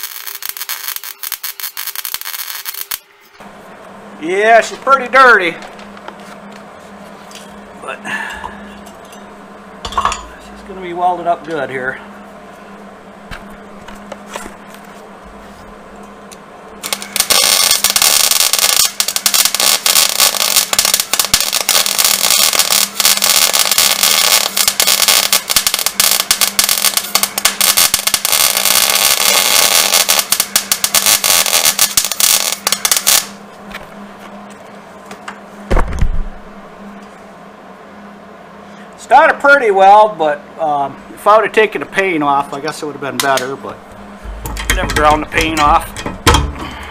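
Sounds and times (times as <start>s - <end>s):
welding arc crackling: 0.0s - 3.3s, 16.3s - 33.9s, 44.2s - 46.9s
steady low hum: 0.0s - 46.9s
thump: 35.7s - 36.3s.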